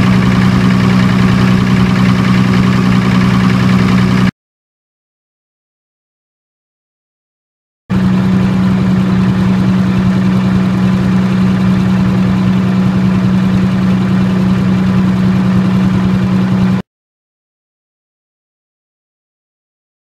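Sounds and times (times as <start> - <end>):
diesel generator humming: 0.0 - 4.3, 7.9 - 16.8.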